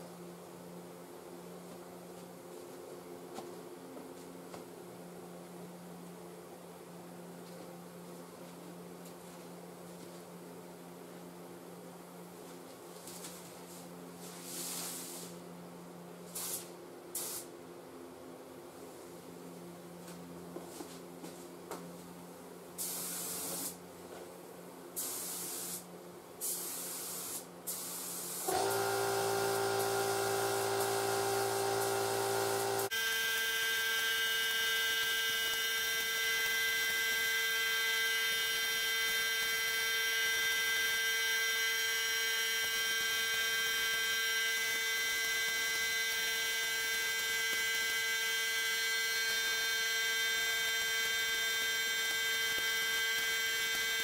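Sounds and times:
paint spray gun hissing: 0:16.4 - 0:17.5, 0:22.8 - 0:23.8, 0:25.0 - 0:25.8, 0:26.4 - 0:32.9
steady machine hum: 0:28.5 - 0:40.4.

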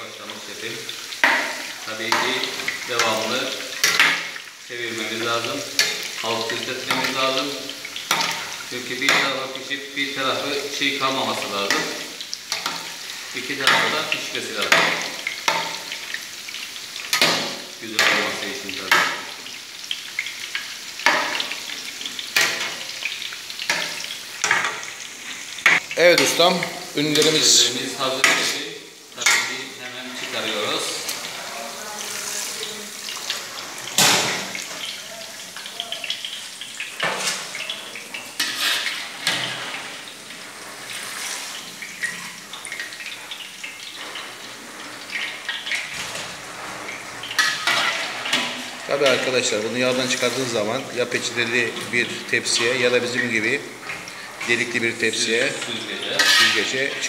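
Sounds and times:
fritters sizzling in hot oil: 0:00.0 - 0:57.0
skimmer stirring in oil: 0:34.6 - 0:57.0
metal skimmer scraping pot: 0:37.0 - 0:40.0, 0:53.8 - 0:57.0.

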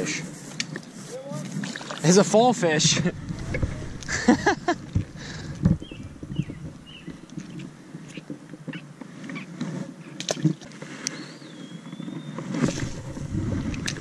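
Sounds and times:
water splashing: 0:01.6 - 0:07.8, 0:12.6 - 0:14.0.

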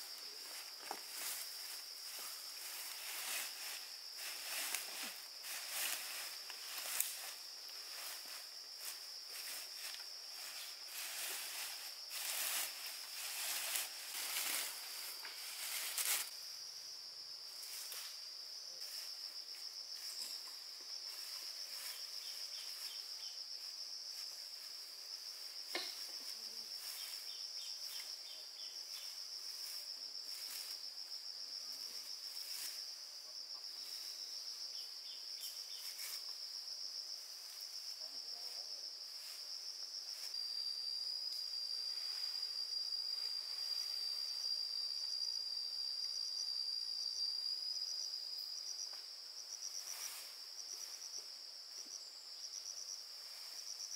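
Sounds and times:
insects trilling: 0:00.0 - 0:53.9
rustling and handling noises: 0:00.4 - 0:16.3.

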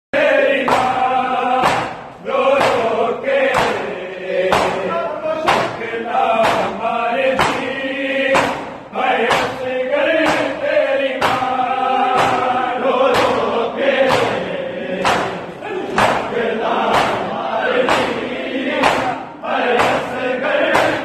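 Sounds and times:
men chanting together: 0:00.2 - 0:21.0
hands slapping chests: 0:00.6 - 0:21.0.

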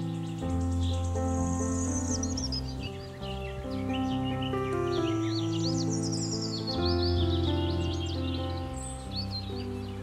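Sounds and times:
bird-like chirps: 0:00.0 - 0:10.0
calm music with slow chords: 0:00.0 - 0:10.0.

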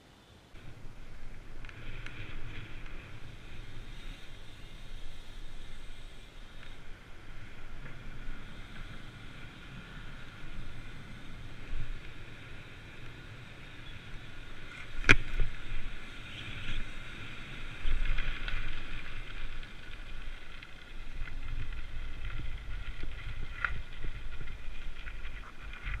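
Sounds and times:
bicycle tyres on pavement: 0:00.3 - 0:26.0
bicycle tyres rumbling on gravel: 0:00.6 - 0:26.0
wind on microphone: 0:13.9 - 0:26.0.

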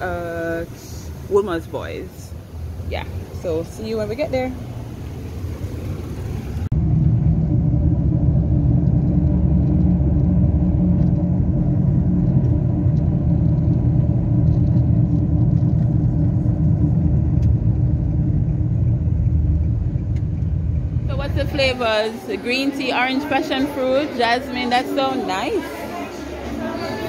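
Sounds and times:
car driving heard from inside: 0:02.8 - 0:22.0.

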